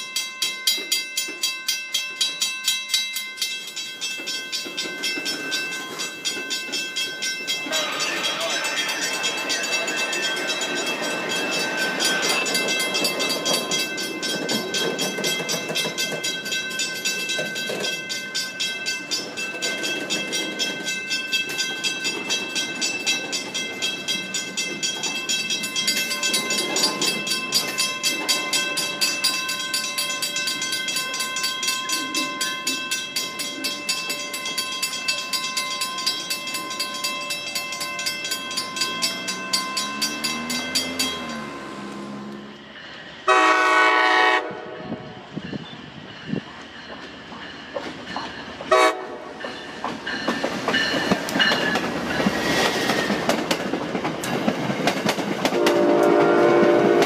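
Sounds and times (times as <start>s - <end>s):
wheels clicking on rails: 0.0s - 43.2s, 45.6s - 57.0s
freight train rumbling: 0.0s - 57.0s.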